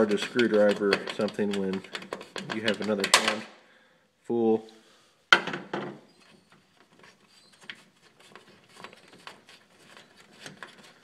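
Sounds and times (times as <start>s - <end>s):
screwdriver clicking and scraping: 0.0s - 3.1s.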